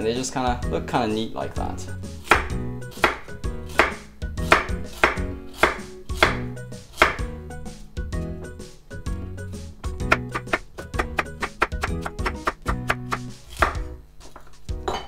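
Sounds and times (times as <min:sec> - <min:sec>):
knife chopping carrot on board: 0:02.2 - 0:07.3, 0:10.1 - 0:13.9.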